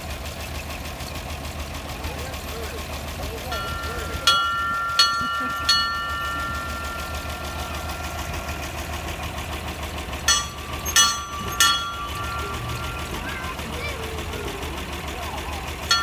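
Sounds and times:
engine idling: 0.0s - 16.0s
brass bell ringing: 3.5s - 9.3s, 10.3s - 13.2s.

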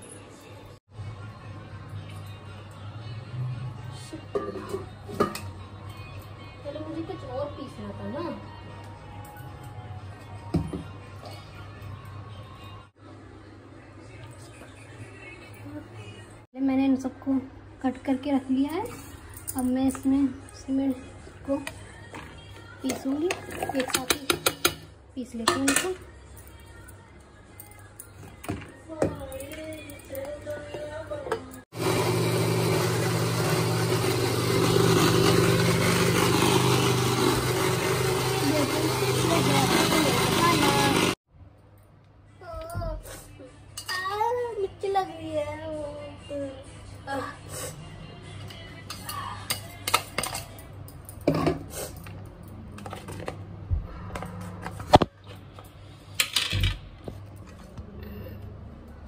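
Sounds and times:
mixer grinder motor grinding: 31.7s - 41.2s.

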